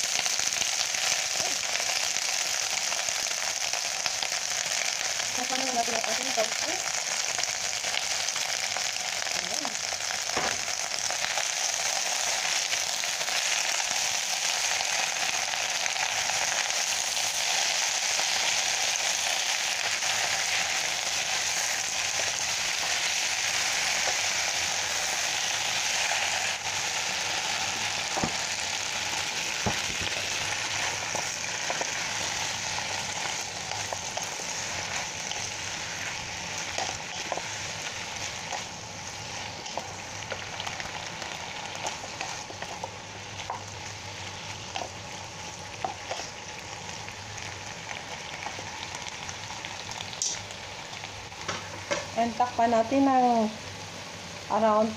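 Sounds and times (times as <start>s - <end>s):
food sizzling in oil: 0.0s - 54.9s.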